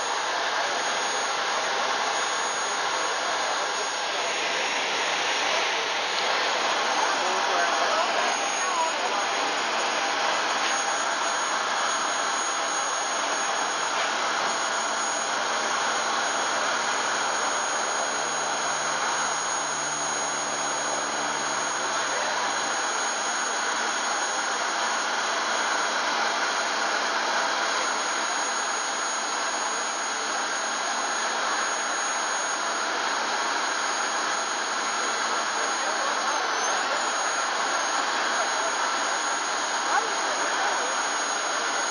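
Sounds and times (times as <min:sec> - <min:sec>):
jet turbine whine and rush: 0:00.0 - 0:41.9.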